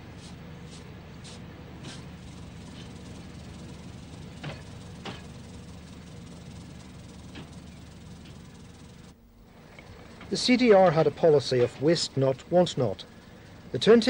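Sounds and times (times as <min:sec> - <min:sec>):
background hiss: 0:00.0 - 0:05.8
railcar diesel engine running: 0:00.0 - 0:14.0.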